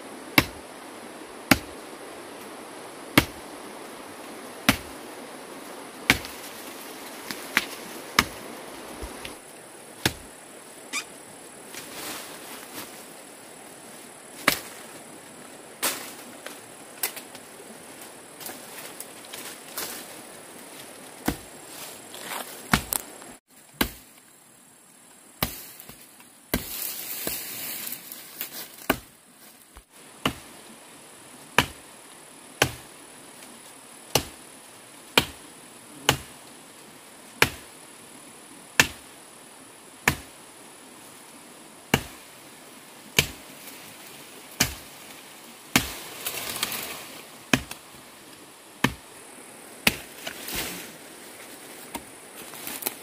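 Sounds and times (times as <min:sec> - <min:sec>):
steady high hiss: 0:00.0 - 0:53.0
hand tool chopping blows: 0:00.4 - 0:00.6, 0:01.5 - 0:01.8, 0:03.1 - 0:03.4.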